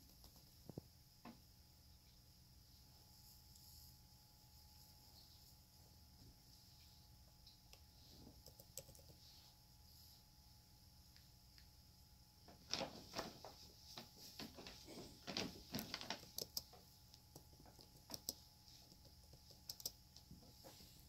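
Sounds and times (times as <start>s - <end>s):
paper bag crackling: 14.3s - 16.3s.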